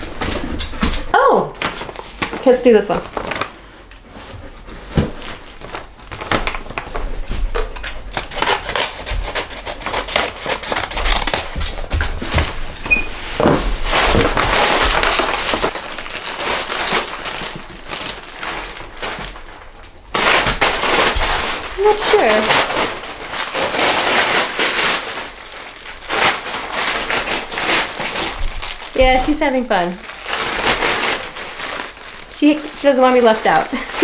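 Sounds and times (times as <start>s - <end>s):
paper crinkling and rustling: 0.0s - 34.0s
scissors cutting paper: 8.1s - 11.8s.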